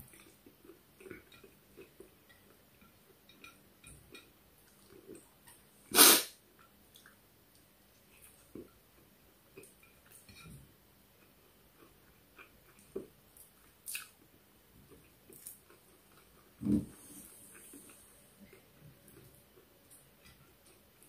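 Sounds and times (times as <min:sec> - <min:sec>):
person chewing: 0:11.2 - 0:16.6.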